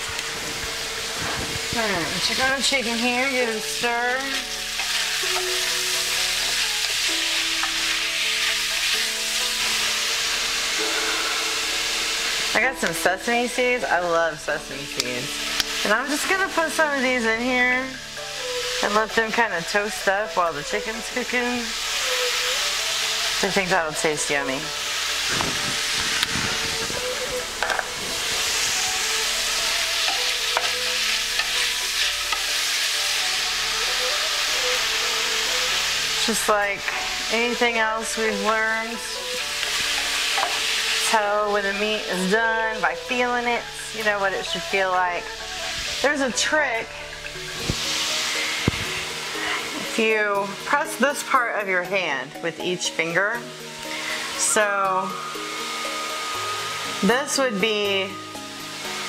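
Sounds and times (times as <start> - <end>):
chicken sizzling in frying pan: 0.0 - 59.0
wooden spoon stirring: 27.0 - 33.0.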